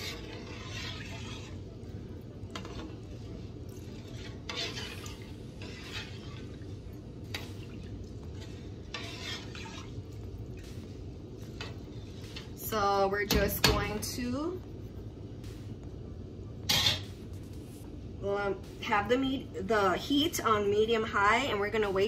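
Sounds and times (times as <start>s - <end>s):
metal spoon stirring rice in pot: 0.0s - 10.0s
steady low hum: 0.0s - 22.0s.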